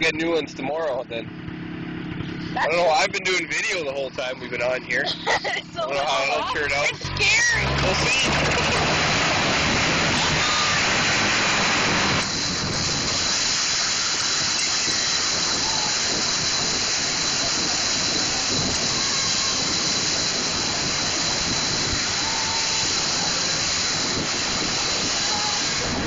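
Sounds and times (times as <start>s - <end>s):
rushing water: 7.0s - 26.0s.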